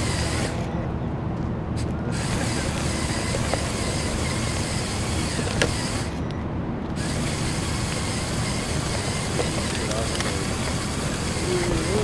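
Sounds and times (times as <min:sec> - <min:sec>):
toy car motors and gears whirring: 0:00.0 - 0:00.7, 0:01.8 - 0:06.3, 0:06.9 - 0:12.0
sharp clicks: 0:01.8 - 0:12.0.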